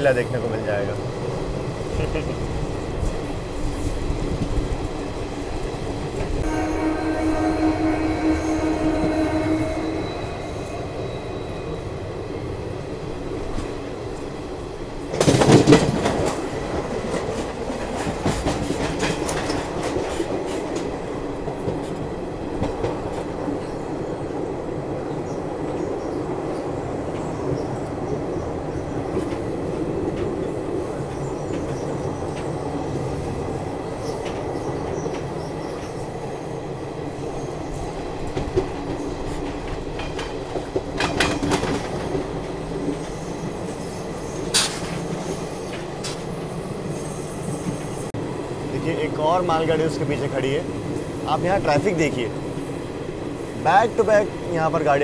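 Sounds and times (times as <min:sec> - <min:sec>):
train wheels and wind rumble: 0:00.0 - 0:55.0
train horn: 0:06.4 - 0:11.9.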